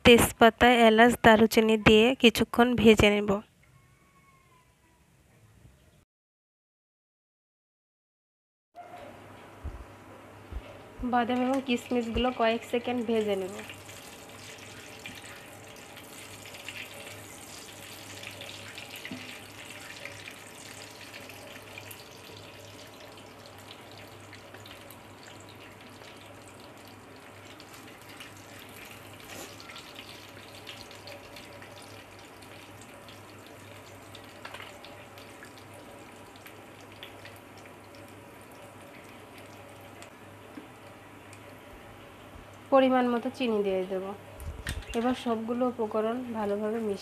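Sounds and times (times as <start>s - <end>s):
food sizzling in hot oil: 11.2s - 40.1s.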